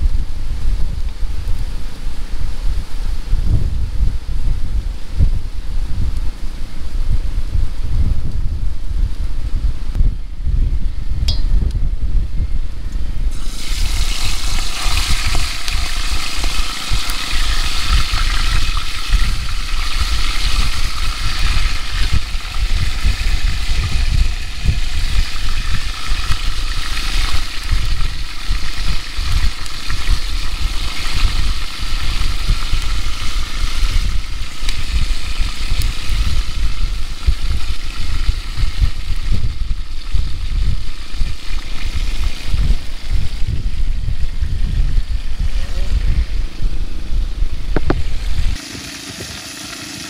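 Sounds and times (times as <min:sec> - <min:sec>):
wind buffeting microphone: 0:00.0 - 0:48.6
seafood sizzling in oil: 0:13.3 - 0:45.6, 0:46.3 - 0:50.0.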